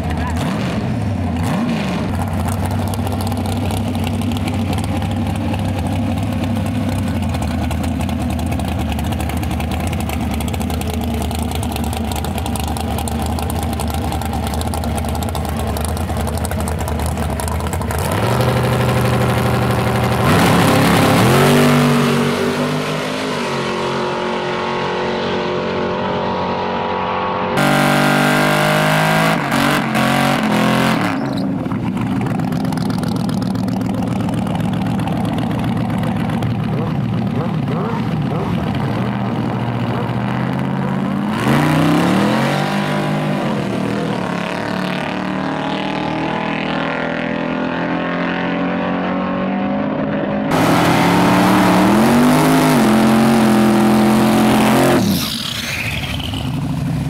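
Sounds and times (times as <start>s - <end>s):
dragster engine revving: 0.0s - 26.8s, 27.6s - 47.7s, 50.5s - 57.0s
car engine during burnout: 0.0s - 57.0s.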